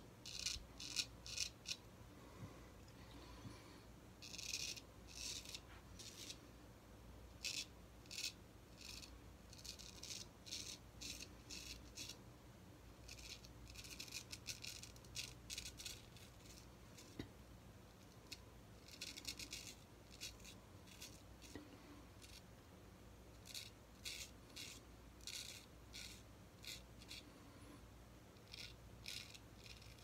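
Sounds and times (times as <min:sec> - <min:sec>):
razor scraping stubble: 0:00.2 - 0:01.8, 0:04.2 - 0:06.4, 0:07.4 - 0:12.2, 0:13.0 - 0:17.3, 0:18.0 - 0:22.4, 0:23.4 - 0:27.4, 0:28.4 - 0:30.0.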